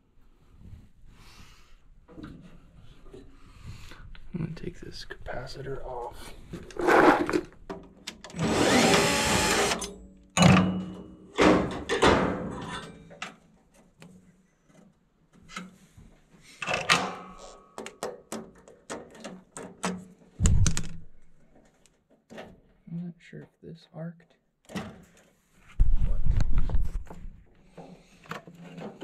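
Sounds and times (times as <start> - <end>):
clicks and scrapes: 6.5 - 7.6.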